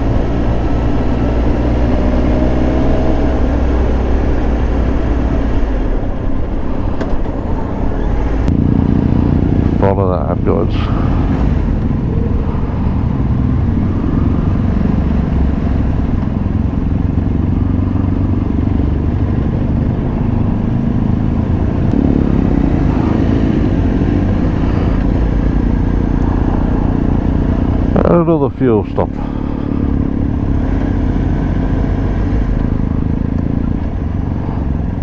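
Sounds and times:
motorcycle engine running: 8.4 - 35.0
wind rumble on microphone: 10.6 - 28.0.

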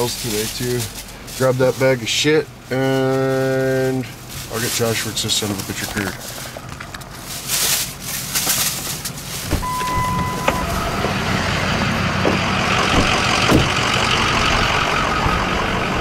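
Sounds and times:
clothing rustling: 0.0 - 11.2
vehicle engine running: 0.0 - 16.0
handling knocks: 9.4 - 11.3, 12.2 - 14.0
electronic beep: 9.6 - 11.1.

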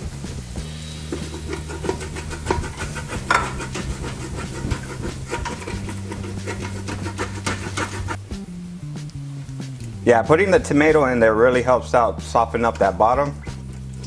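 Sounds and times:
wooden spoon scraping a pot: 0.8 - 8.2.

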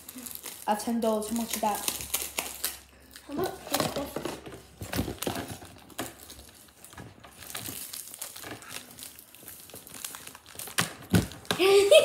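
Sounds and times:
plastic wrapper crinkling: 0.0 - 12.0.

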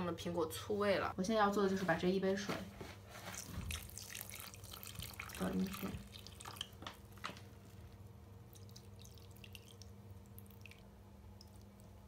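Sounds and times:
water trickling onto cat litter: 3.2 - 12.0.

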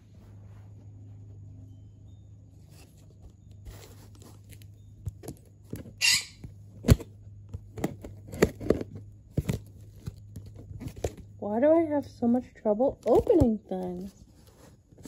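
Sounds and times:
cardboard box being opened: 2.7 - 6.0.

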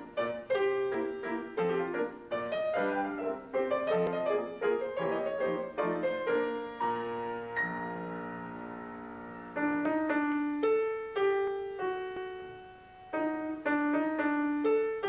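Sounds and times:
solo piano piece: 0.0 - 15.0.

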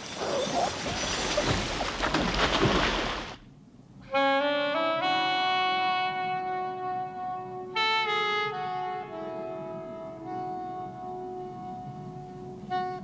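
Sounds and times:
water splashing and rushing: 0.0 - 3.5
slow melody of held notes: 4.1 - 13.0.

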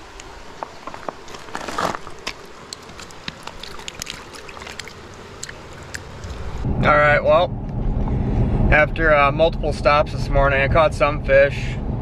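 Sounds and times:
stream trickling: 0.0 - 6.7
water splashing around a hand: 1.4 - 6.6.

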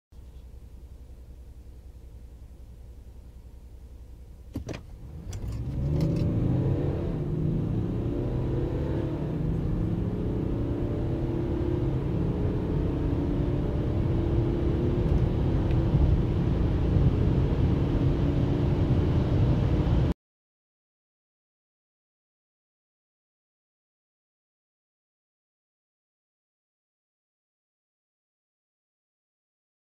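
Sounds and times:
car engine accelerating: 4.3 - 20.1.

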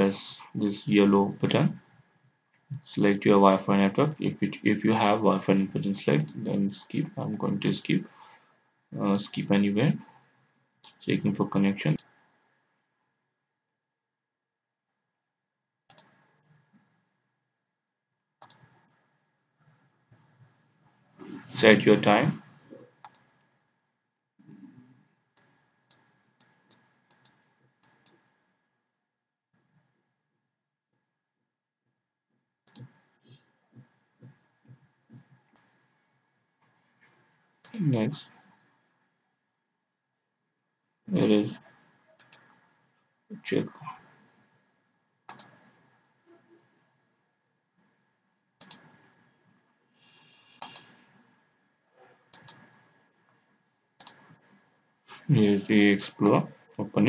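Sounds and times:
computer mouse clicks: 15.9 - 16.2, 18.4 - 18.8, 23.0 - 23.5, 25.4 - 28.2, 32.6 - 33.0, 42.2 - 42.5, 45.3 - 45.7, 48.6 - 49.0, 50.5 - 51.0, 52.3 - 52.7, 54.0 - 54.4.

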